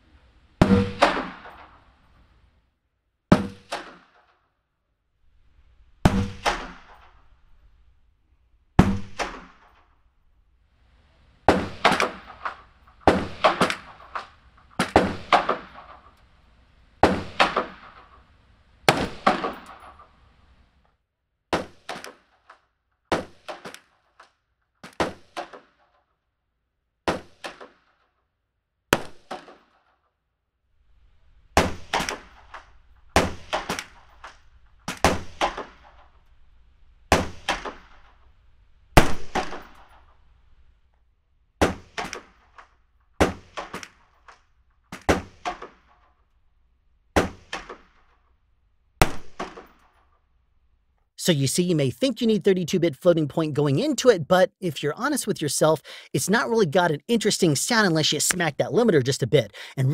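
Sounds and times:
gunshots: 0.6s - 1.9s, 6.0s - 7.2s, 11.5s - 16.1s, 17.0s - 18.2s, 18.9s - 20.0s, 39.0s - 40.0s, 49.0s - 49.9s.

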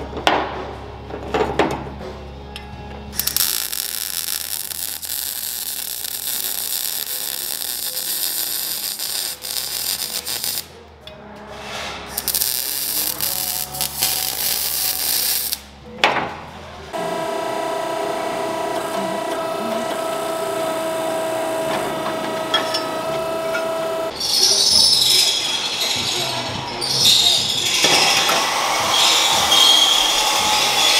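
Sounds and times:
welder crackling sizzle: 3.2s - 10.7s, 12.1s - 15.7s.

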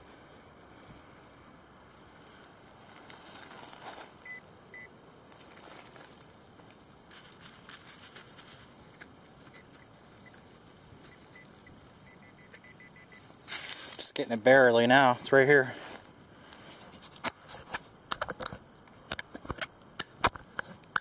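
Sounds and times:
scraping through loose soil: 2.0s - 11.9s, 13.4s - 14.4s
faint beeps: 4.2s - 5.0s, 9.4s - 10.4s, 11.0s - 13.3s.

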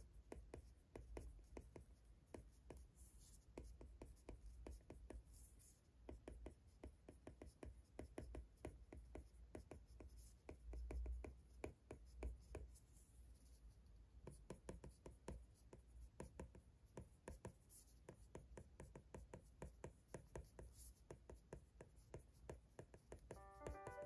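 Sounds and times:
stylus tapping on a screen: 16.2s - 24.0s.

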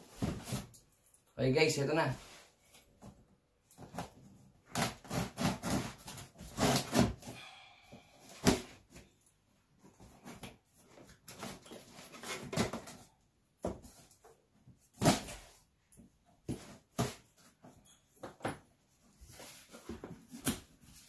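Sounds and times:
packing tape scraping and tearing: 4.6s - 7.4s.

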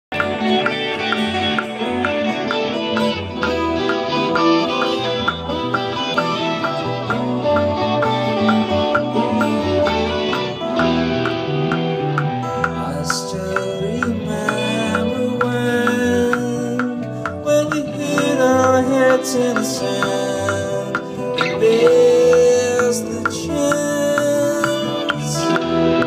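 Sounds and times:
song with plucked guitar and beat: 0.0s - 26.0s.

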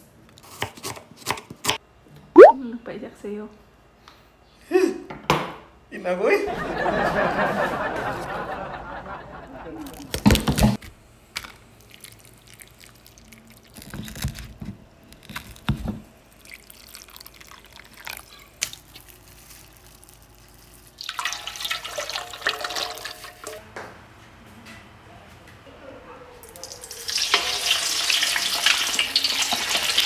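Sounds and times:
oil pouring into a wok: 20.9s - 23.6s.

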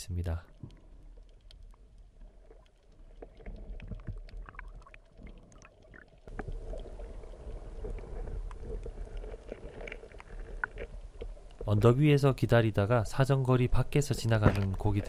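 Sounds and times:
faint clicks and crackles: 0.4s - 12.5s, 13.9s - 15.0s.

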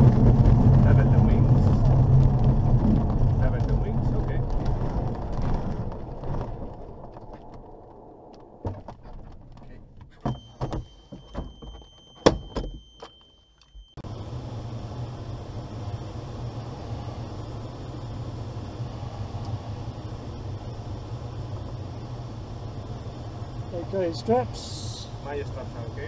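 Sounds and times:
landing wheel rumbling over grass: 0.0s - 10.2s.

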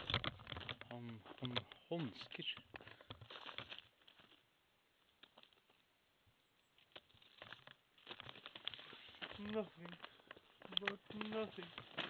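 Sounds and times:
light clicks: 9.8s - 11.9s.

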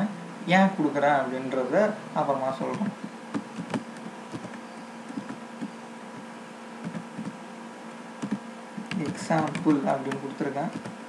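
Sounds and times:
faint electrical hum: 0.0s - 11.0s
keyboard key clicks: 8.2s - 10.9s.

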